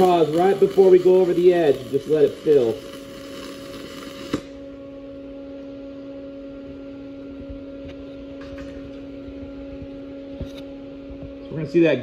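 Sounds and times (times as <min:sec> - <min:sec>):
welding arc crackle: 0:00.0 - 0:04.7
two-pitched electrical hum: 0:00.0 - 0:12.0.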